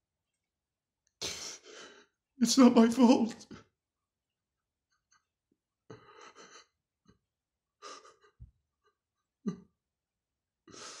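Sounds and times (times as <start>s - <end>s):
man gasping and sobbing: 1.2s - 2.2s, 5.9s - 6.8s, 7.8s - 8.5s, 10.7s - 11.0s.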